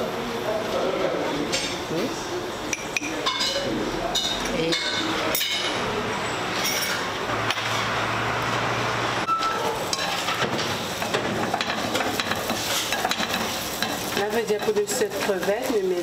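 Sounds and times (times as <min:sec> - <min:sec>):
bowls and utensils clinking: 0:06.6 - 0:07.7, 0:09.3 - 0:15.6
onion sizzling in frying pan: 0:09.4 - 0:16.0.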